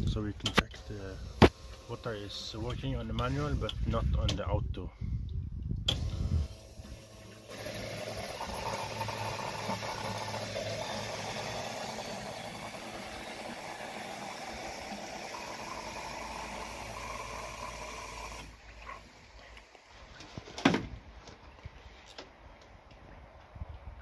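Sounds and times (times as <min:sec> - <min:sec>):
electric pump humming: 0:00.6 - 0:03.9, 0:05.9 - 0:19.2
water rushing through pump: 0:05.9 - 0:19.4.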